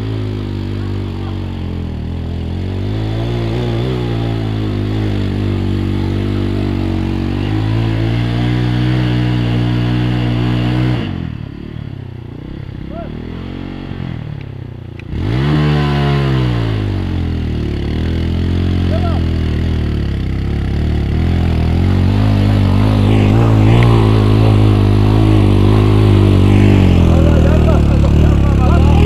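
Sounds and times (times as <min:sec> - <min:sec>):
off-road vehicle engine revving: 0:00.0 - 0:29.0.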